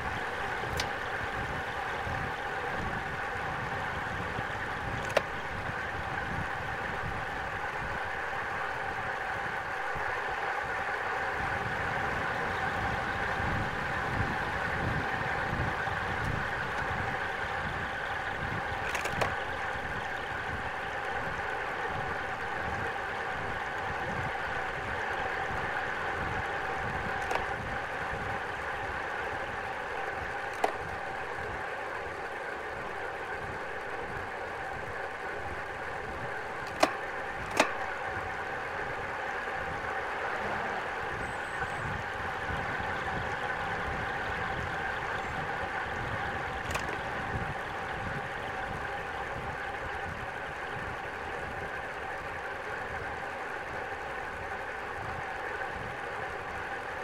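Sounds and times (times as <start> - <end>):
bicycle tyre hum: 0.0 - 57.0
sharp clicks: 4.9 - 5.3, 18.8 - 19.4, 27.1 - 27.6, 30.5 - 31.0, 36.6 - 38.0, 46.6 - 47.1.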